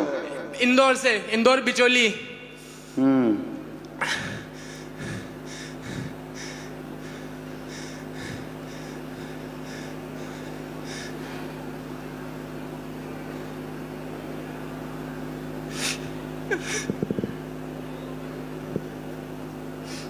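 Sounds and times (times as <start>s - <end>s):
electrical hum: 0.0s - 20.0s.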